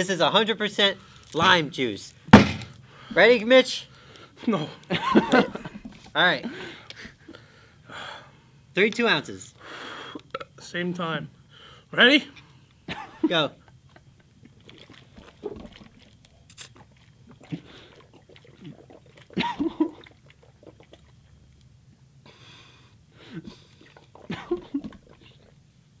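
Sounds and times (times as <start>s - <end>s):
man gulping liquid: 4.8s - 6.2s, 12.9s - 22.1s, 23.2s - 25.6s.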